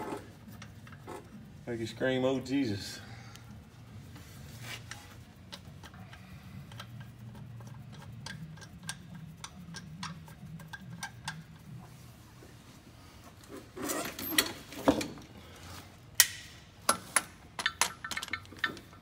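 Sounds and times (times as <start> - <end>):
low steady hum: 0.0 - 19.0
tool clicks and taps on bolts: 16.2 - 19.0.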